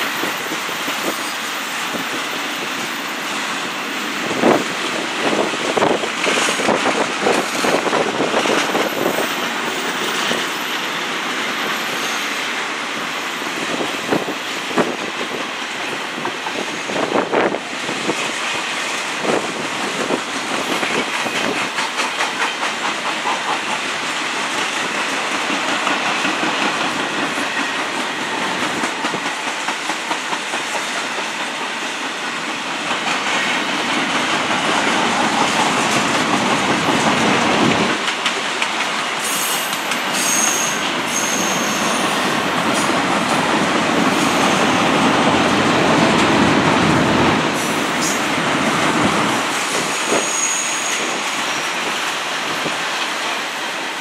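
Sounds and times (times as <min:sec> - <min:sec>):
train wheels clattering on rails: 0:00.0 - 0:54.0
high-pitched wheel squeals: 0:11.7 - 0:12.5, 0:39.2 - 0:42.2, 0:49.9 - 0:51.3.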